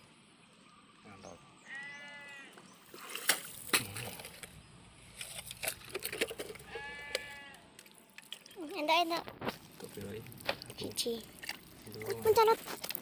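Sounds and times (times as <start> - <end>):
farm animal bleating: 1.6 - 2.6, 6.6 - 7.7.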